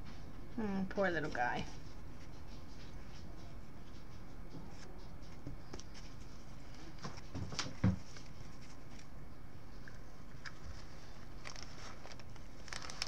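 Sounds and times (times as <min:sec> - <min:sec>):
paper towel rustling: 0:10.3 - 0:13.0.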